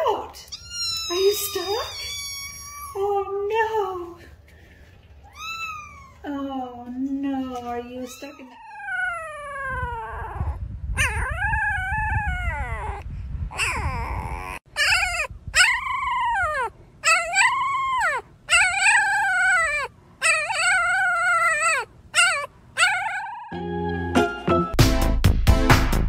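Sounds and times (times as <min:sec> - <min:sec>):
puppies howling: 0:00.6 - 0:03.0, 0:08.1 - 0:10.4, 0:11.0 - 0:13.0, 0:13.6 - 0:23.6.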